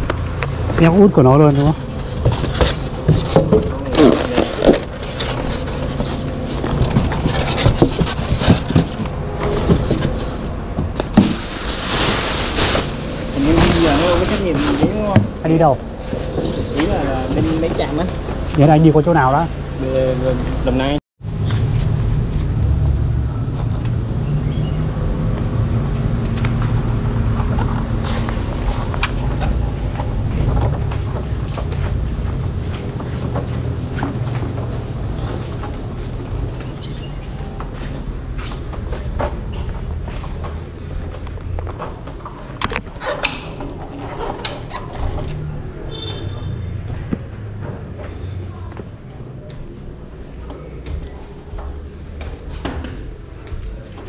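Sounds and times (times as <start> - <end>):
steady engine hum: 0.0 - 42.4.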